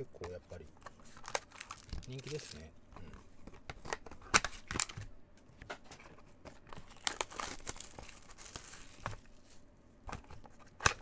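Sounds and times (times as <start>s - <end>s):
cardboard box crinkling and rustling: 6.7s - 9.5s.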